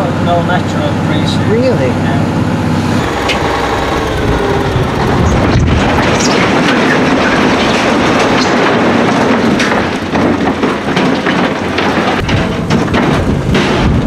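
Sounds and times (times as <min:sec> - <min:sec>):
rocks tumbling from truck bed: 0:05.6 - 0:14.0.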